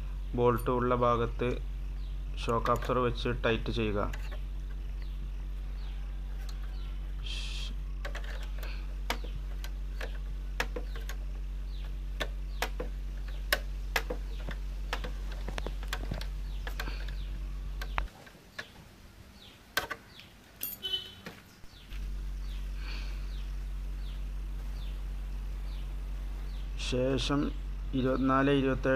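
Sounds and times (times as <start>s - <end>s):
steady low hum: 0.0s - 28.9s
spanner clicking on metal: 2.4s - 3.2s.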